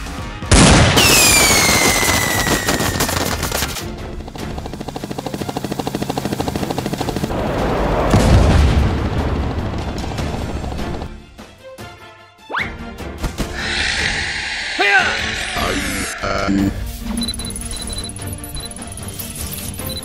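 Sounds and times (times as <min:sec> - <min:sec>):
machine-gun fire: 0:00.5 - 0:03.9
boom: 0:07.8 - 0:09.6
action music: 0:09.5 - 0:20.0.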